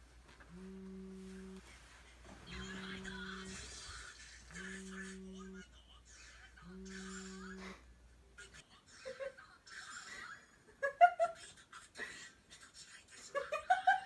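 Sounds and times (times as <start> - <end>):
low hum: 0.0 - 8.4.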